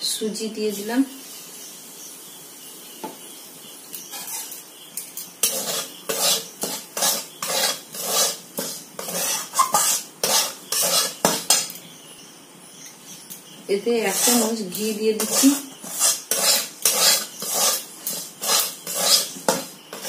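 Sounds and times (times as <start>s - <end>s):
metal spatula scraping metal pan: 4.1s - 4.6s, 5.2s - 11.8s, 14.1s - 14.6s, 15.2s - 20.0s.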